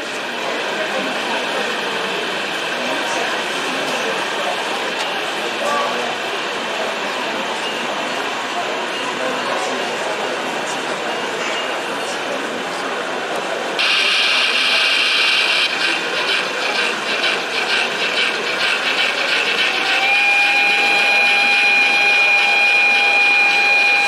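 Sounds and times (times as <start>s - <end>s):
pulsing steam hiss: 13.8s - 21.2s.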